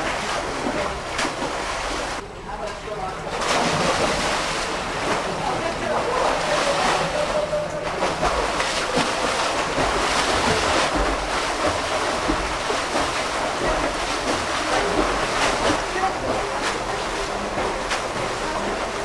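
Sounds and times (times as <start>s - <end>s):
swimmer splashing: 0.0s - 19.0s.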